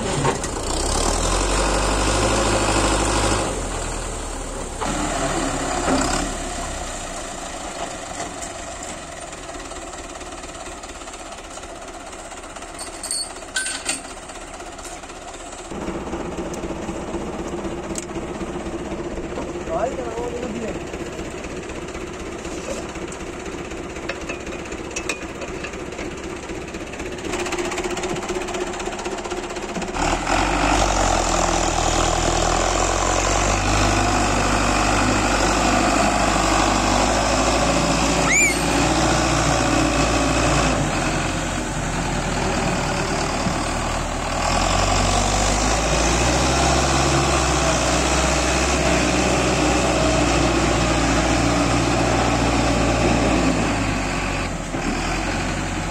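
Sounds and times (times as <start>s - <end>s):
tractor diesel engine revving: 0.0s - 55.9s
high rising squeal: 38.1s - 39.2s.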